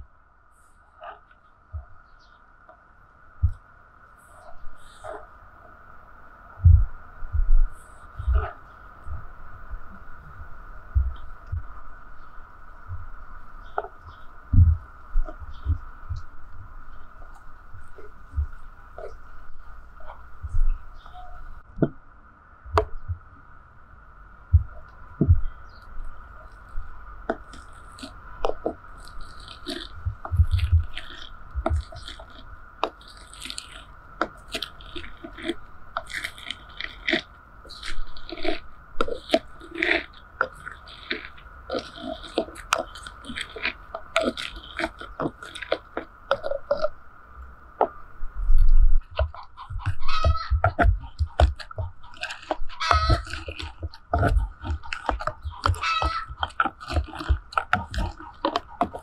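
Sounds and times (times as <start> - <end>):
seeds crushed with wet crunches: 24.6 - 47.0, 47.8 - 59.0.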